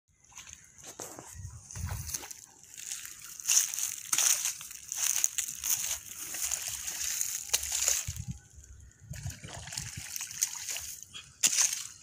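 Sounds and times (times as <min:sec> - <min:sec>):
muddy water splashing and sloshing: 0:01.6 - 0:12.0.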